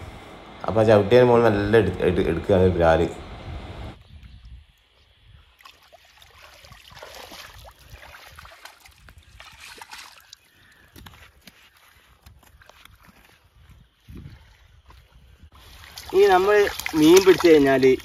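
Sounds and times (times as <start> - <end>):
hands and feet in mud and water: 4.8 - 18.0.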